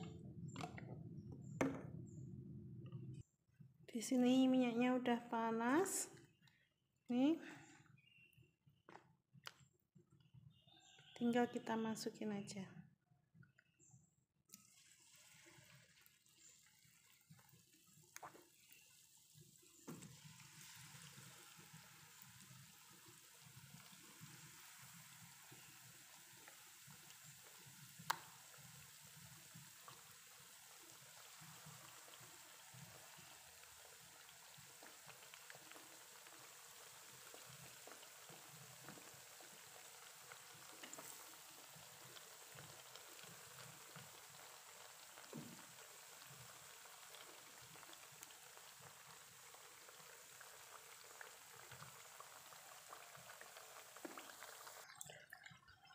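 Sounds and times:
hot oil sizzling: 14.6 - 54.8.

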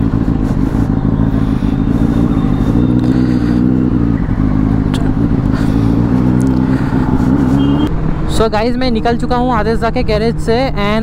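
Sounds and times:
motorcycle engine running: 0.0 - 8.3.

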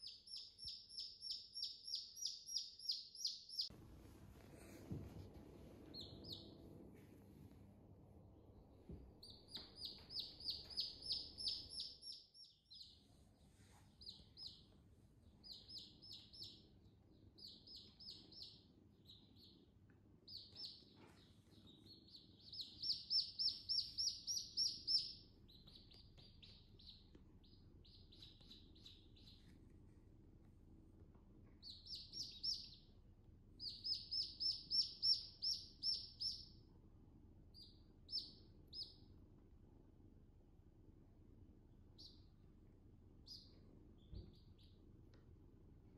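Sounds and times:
chicks peeping: 0.0 - 3.7, 5.8 - 6.7, 9.2 - 29.5, 31.6 - 32.9, 33.6 - 36.5, 37.5 - 39.0, 43.2 - 44.8.

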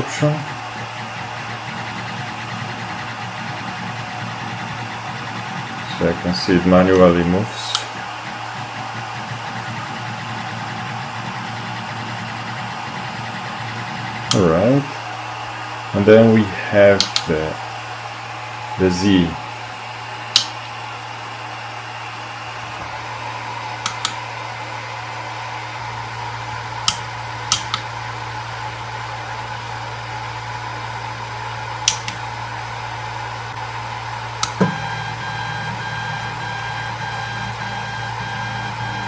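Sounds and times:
stepper motors whining: 0.0 - 16.1, 33.4 - 39.0
printer fans humming: 0.0 - 39.0.

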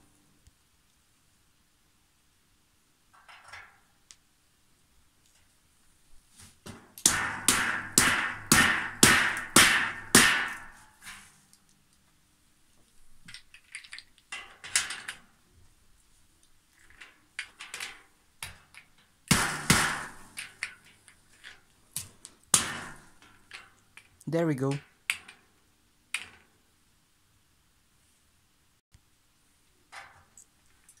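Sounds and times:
sharp knocks on metal tube frame: 6.7 - 11.1, 19.3 - 20.9, 22.5 - 23.8.

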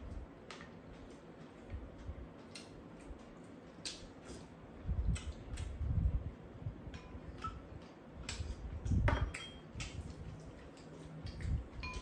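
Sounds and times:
utensils clicking against bowls: 9.2 - 10.0.

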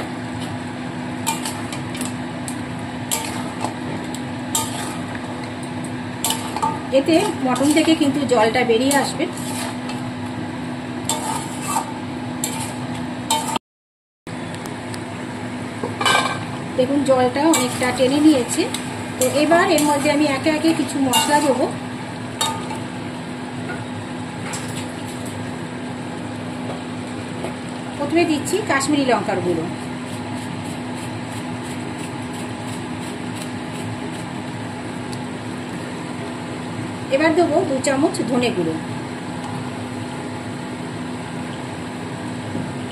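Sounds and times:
kitchen hum and hiss: 0.0 - 13.6, 14.3 - 42.9
metal spatula scraping pan: 3.1 - 3.7, 4.5 - 5.1, 6.2 - 8.0, 8.9 - 10.0, 11.1 - 13.6, 17.5 - 21.6.

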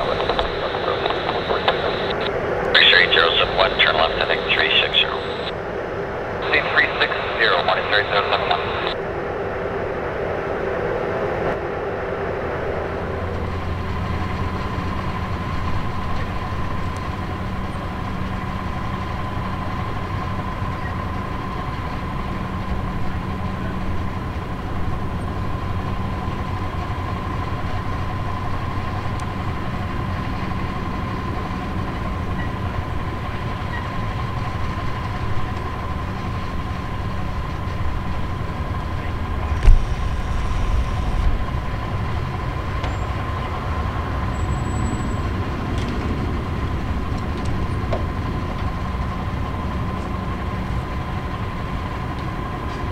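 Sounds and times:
high machinery whine: 0.0 - 52.9
low hum: 0.0 - 52.9
sharp thump: 39.6 - 40.0.

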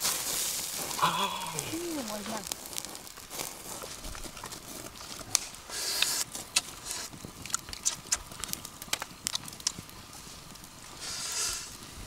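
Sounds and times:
campfire crackling and popping: 0.0 - 12.0
brief fire hiss: 5.3 - 7.2, 10.9 - 11.8.

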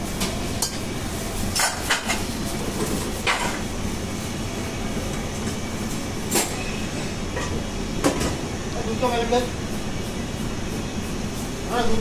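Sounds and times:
kitchen machinery rumble: 0.0 - 12.0
utensils and dishes clinking: 0.2 - 3.7.

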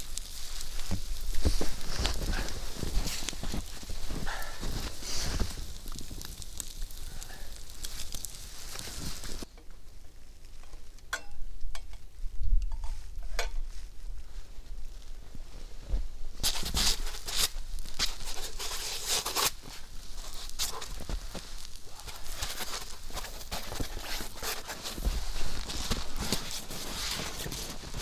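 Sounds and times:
foam mat rustling: 0.0 - 6.8, 7.6 - 9.5, 15.2 - 28.0
footsteps crunching in snow: 0.0 - 9.5, 13.8 - 28.0
fire crackling and hissing: 0.0 - 28.0.

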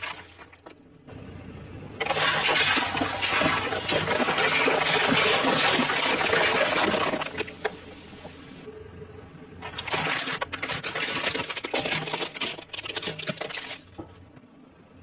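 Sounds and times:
soda gushing and fizzing: 2.0 - 7.7
plastic bottles crackling: 9.6 - 14.1.

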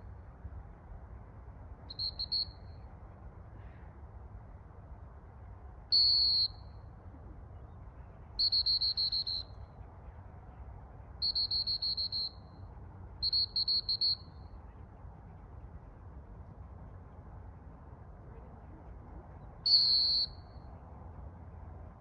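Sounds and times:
dog whistle blasts and toots: 8.4 - 9.4, 11.2 - 12.3, 13.2 - 14.2, 19.7 - 20.3.

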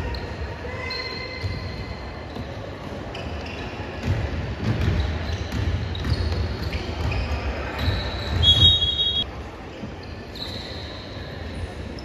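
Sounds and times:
sneakers squeaking: 0.0 - 12.0
basketball bouncing: 4.0 - 7.2.

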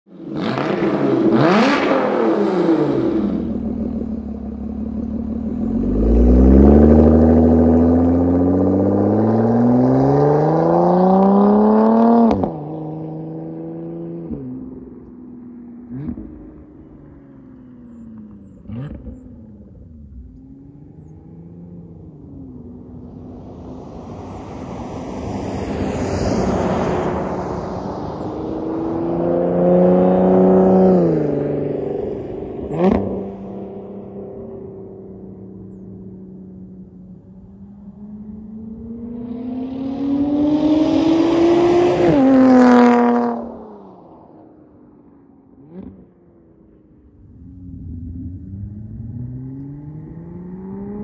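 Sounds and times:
sports car engine revving: 0.3 - 14.4, 17.6 - 22.1
car passing by: 23.0 - 33.2, 38.8 - 44.4.

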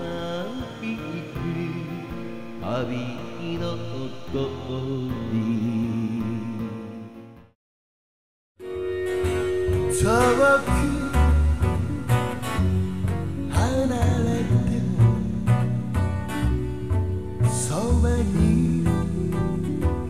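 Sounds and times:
man singing: 0.0 - 7.2, 9.7 - 12.6, 13.4 - 15.8, 17.4 - 20.0
acoustic guitar playing: 0.0 - 7.5, 8.6 - 20.0.

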